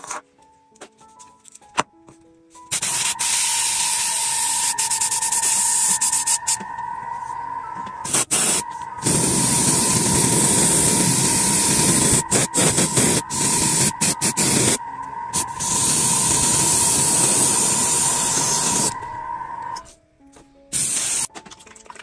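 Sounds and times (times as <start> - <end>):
hissing spray nozzle: 2.7 - 6.6, 8.0 - 19.0, 20.7 - 21.3
steady thin whine: 4.3 - 19.8.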